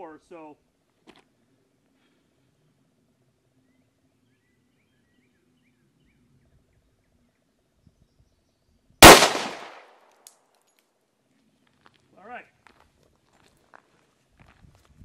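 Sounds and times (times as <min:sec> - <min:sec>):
pistol shot: 0:09.0 - 0:09.9.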